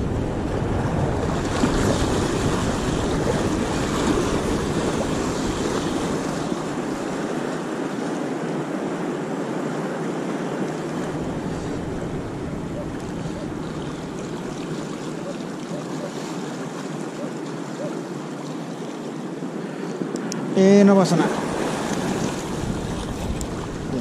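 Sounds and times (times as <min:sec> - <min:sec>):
wind buffeting microphone: 0:00.0 - 0:16.2, 0:21.4 - 0:24.0
surf washing on beach: 0:00.0 - 0:24.0.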